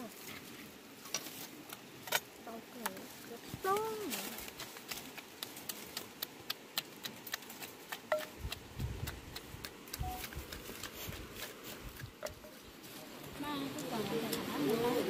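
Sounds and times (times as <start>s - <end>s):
wooden pestle knocking in mortar: 7.0s - 12.6s.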